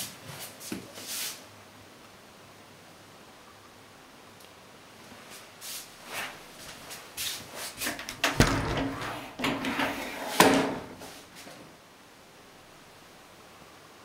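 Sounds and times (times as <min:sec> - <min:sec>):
door knocks and clunks: 0:08.1 - 0:11.0.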